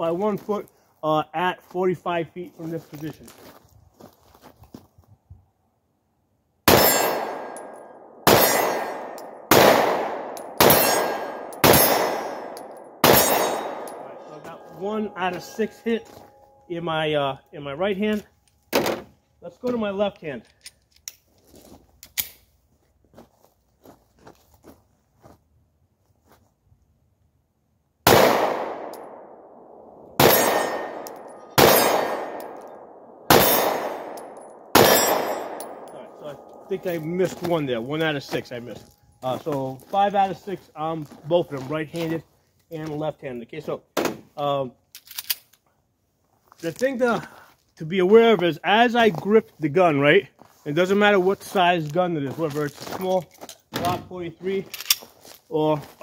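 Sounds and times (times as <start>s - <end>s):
pistol shots with echo: 6.7s - 15.7s, 28.1s - 37.1s.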